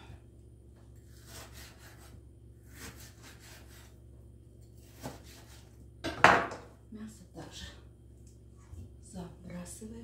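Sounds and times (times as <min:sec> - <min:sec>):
knife sawing through meat: 0:01.1 - 0:02.1, 0:02.7 - 0:03.9.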